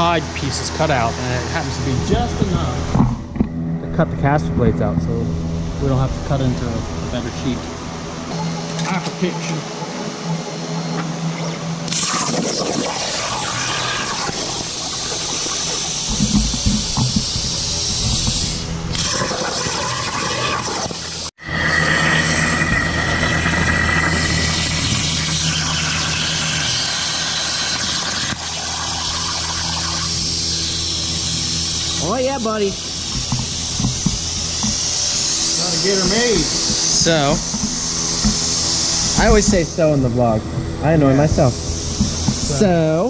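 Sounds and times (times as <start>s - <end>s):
plasma torch hissing: 11.9s - 42.9s.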